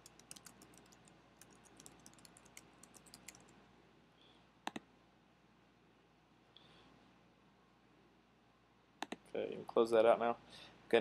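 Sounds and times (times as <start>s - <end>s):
typing on keyboard: 0.0s - 3.5s.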